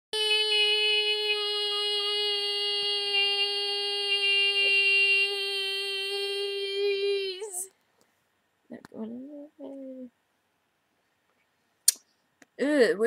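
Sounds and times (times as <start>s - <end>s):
woman singing high note: 0.2s - 7.7s.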